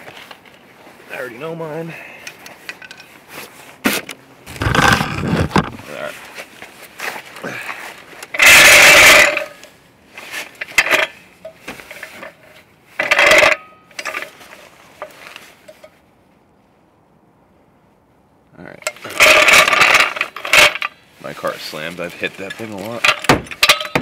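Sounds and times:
metal floor jack scraping on asphalt: 0:01.5 - 0:16.0, 0:18.8 - 0:24.0
small knocks: 0:23.0 - 0:24.0.

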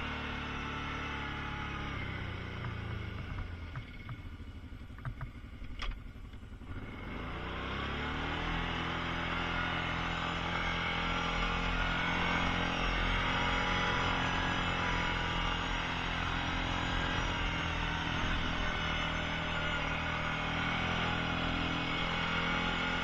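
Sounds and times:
atv engine running: 0:00.0 - 0:23.0.

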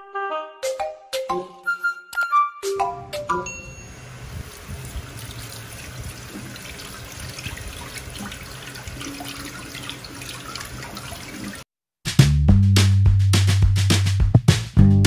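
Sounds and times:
tap water running and splashing: 0:04.3 - 0:11.7.

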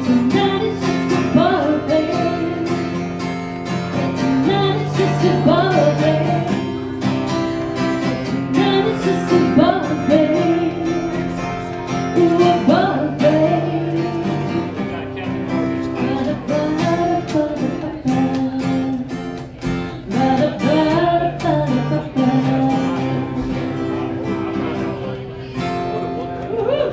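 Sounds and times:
woman singing: 0:00.0 - 0:03.0, 0:04.1 - 0:07.2, 0:08.2 - 0:14.7, 0:16.0 - 0:23.7
acoustic guitar strumming: 0:00.0 - 0:26.9.

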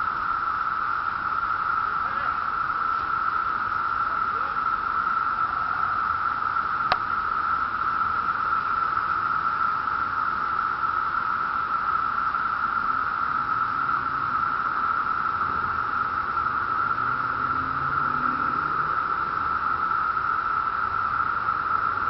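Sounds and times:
cicadas whining: 0:00.0 - 0:22.0.

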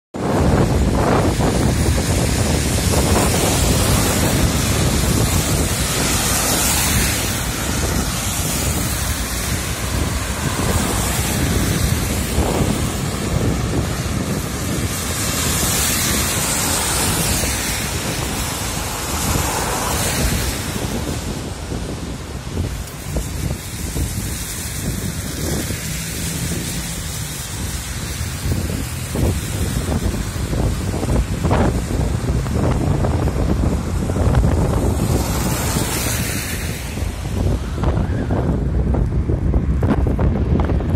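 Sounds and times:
car tyres hissing on wet road: 0:00.2 - 0:40.9
wind buffeting microphone: 0:00.2 - 0:40.9.

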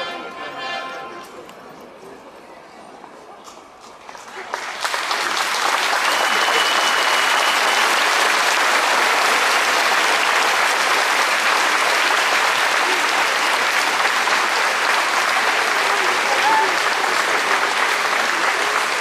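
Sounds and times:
crowd applauding: 0:04.0 - 0:19.0.

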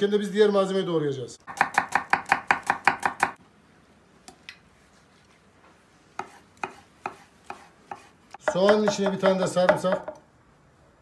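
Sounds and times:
knife chopping on wooden board: 0:01.5 - 0:03.4, 0:06.2 - 0:10.2.

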